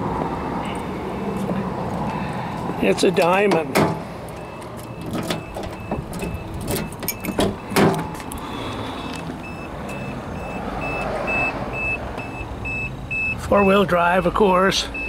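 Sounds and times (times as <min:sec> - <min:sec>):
car door opening clunk: 0:03.5 - 0:08.4
high warning beeps: 0:04.4 - 0:08.4, 0:09.0 - 0:15.0.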